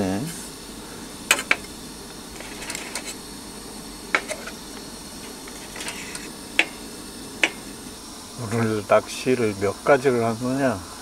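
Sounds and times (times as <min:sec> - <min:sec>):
steady cooking hiss: 0:00.0 - 0:11.0
utensils clinking against pots: 0:01.3 - 0:01.7, 0:04.2 - 0:04.6.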